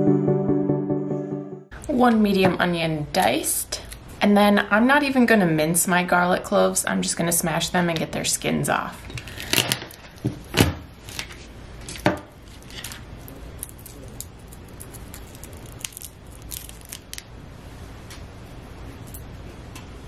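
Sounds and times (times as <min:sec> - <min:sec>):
papery garlic skins crackling: 0:09.2 - 0:10.3, 0:11.0 - 0:17.4.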